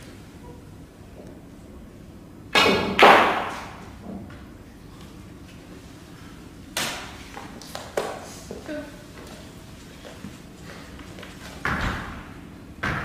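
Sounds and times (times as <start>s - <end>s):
snooker balls colliding: 2.5s - 4.5s.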